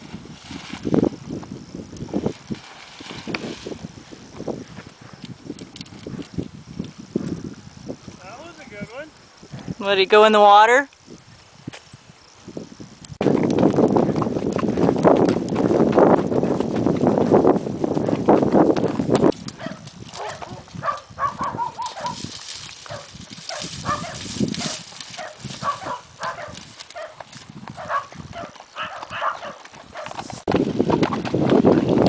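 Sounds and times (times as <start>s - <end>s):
wind buffeting microphone: 0.0s - 32.0s
hoofbeats: 13.2s - 32.0s.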